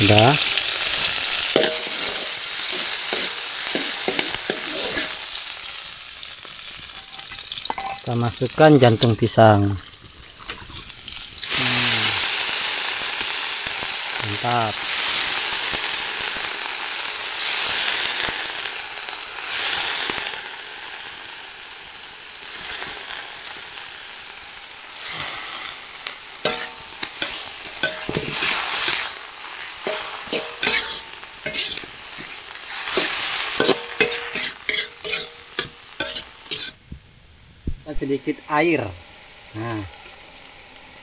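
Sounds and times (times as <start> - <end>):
food sizzling in a pan: 0.0 - 36.8, 38.2 - 41.0
utensil scraping a pan: 1.1 - 5.4, 26.4 - 36.8.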